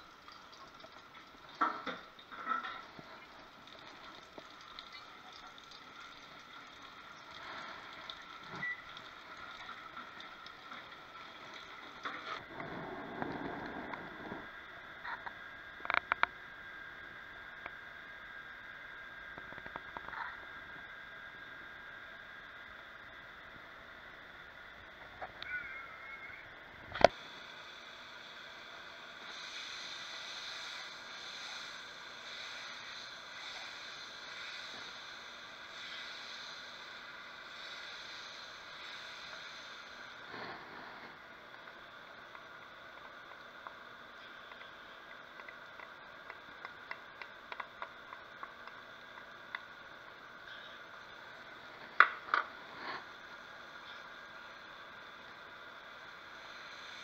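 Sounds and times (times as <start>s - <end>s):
food sizzling in hot oil: 0.0s - 14.6s, 27.1s - 45.0s.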